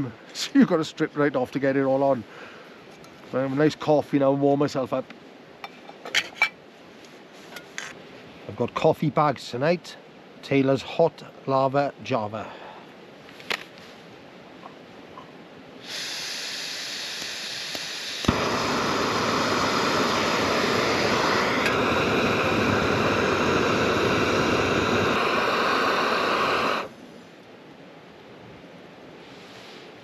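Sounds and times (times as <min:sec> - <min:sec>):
gas burner roaring: 0:15.8 - 0:27.0
gas hissing from valve: 0:15.8 - 0:27.0.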